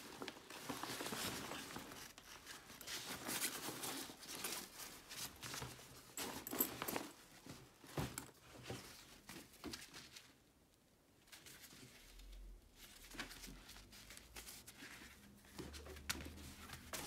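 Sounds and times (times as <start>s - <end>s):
bag fabric rustling: 0.0s - 9.6s.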